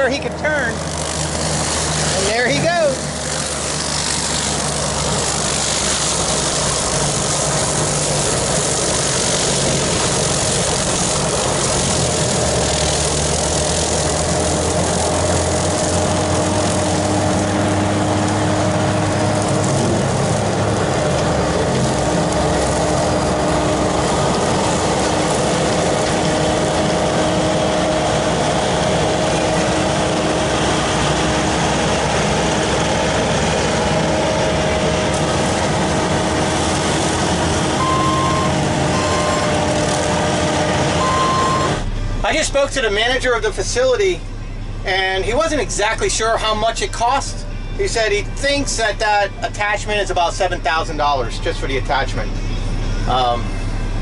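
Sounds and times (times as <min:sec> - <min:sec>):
brush cutter mowing weeds: 0:00.0 - 0:41.7
diesel engine running: 0:00.0 - 0:54.0
steady whine: 0:00.0 - 0:54.0.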